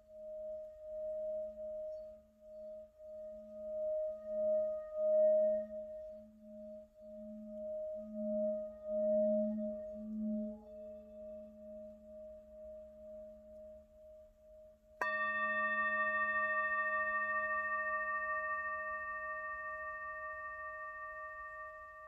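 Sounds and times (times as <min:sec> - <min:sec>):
singing bowl wavering hum: 0:00.0 - 0:22.0
singing bowl struck with mallet: 0:15.0 - 0:22.0.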